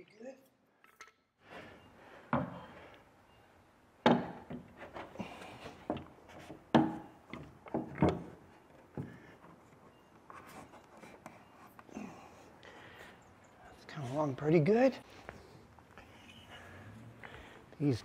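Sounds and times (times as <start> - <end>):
wooden clamps knocking: 4.0 - 4.8, 5.8 - 9.2.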